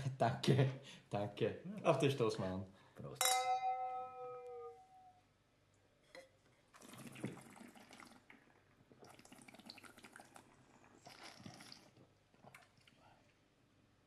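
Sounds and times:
slurping wine: 6.7s - 13.4s.

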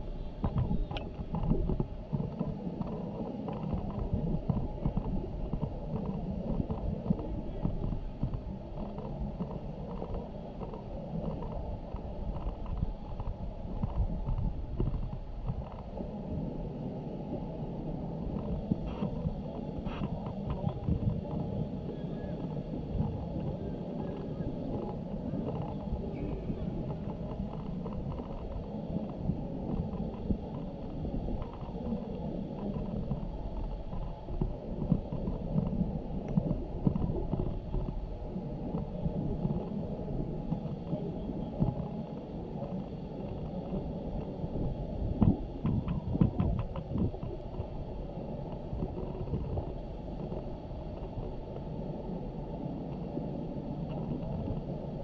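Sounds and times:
muffled outdoor rumble: 0.0s - 55.0s.

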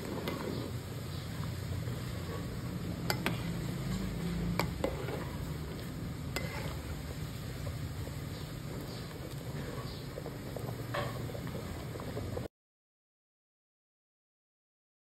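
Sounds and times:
water boiling in a pot: 0.0s - 12.5s
spatula clinking against pot: 2.3s - 5.4s, 6.3s - 6.8s.

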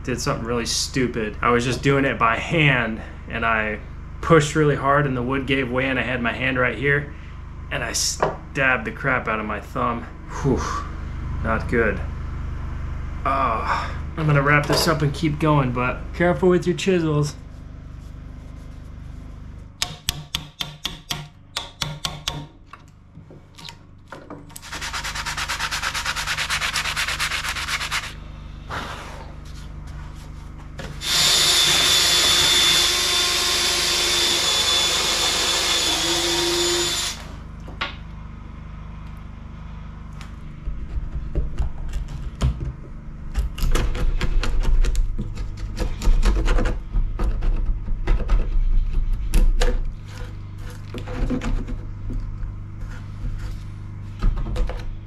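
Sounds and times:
hand blade scraping wood: 24.6s - 28.2s, 43.5s - 51.9s
cordless drill driving into wood: 31.0s - 37.2s.

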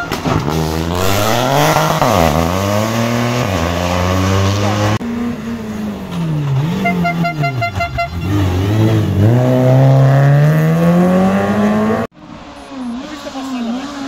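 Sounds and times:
rally car engine revving: 0.0s - 14.0s.

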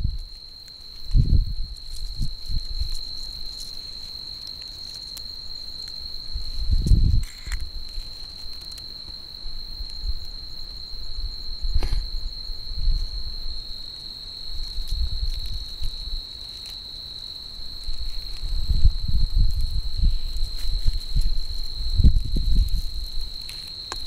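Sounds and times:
rustling: 0.0s - 10.3s, 14.5s - 24.0s
cricket trilling: 0.0s - 24.0s.

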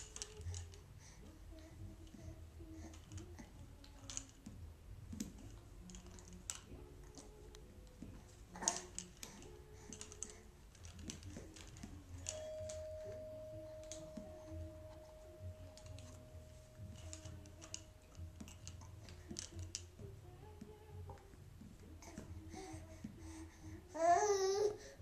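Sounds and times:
plastic toys clicking and clattering: 0.0s - 12.8s, 13.8s - 14.2s, 15.6s - 20.1s
steady thin tone: 12.2s - 20.9s.

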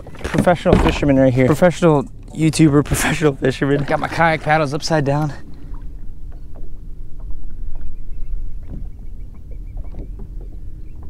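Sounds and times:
water slapping against hull: 0.0s - 11.0s
wind rumbling on microphone: 0.0s - 11.0s
small knocks: 8.6s - 11.0s.

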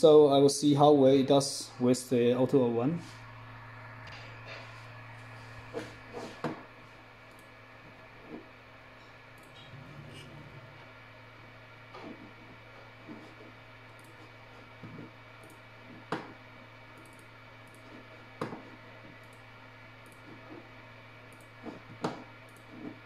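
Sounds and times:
steady low hum: 0.0s - 23.0s
computer mouse clicks: 17.0s - 17.9s, 20.0s - 20.3s, 21.3s - 23.0s.

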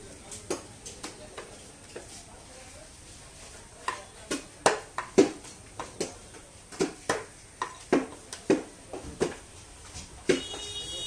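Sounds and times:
knife chopping fish on wood: 4.3s - 6.2s.

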